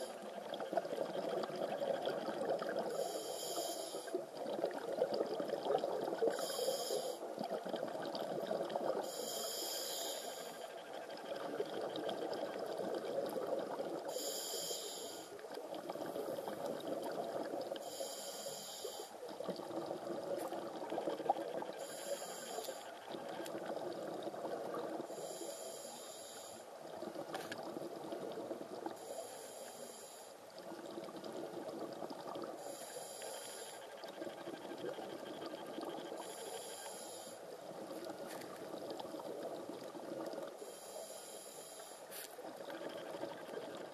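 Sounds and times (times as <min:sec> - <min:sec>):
regulator hissing inhale: 0:02.9 - 0:04.2, 0:06.3 - 0:07.2, 0:09.0 - 0:10.7, 0:14.0 - 0:15.4, 0:17.8 - 0:19.2, 0:21.8 - 0:22.9, 0:25.1 - 0:26.7, 0:29.0 - 0:30.4, 0:32.6 - 0:33.9, 0:36.2 - 0:37.5, 0:40.6 - 0:42.4.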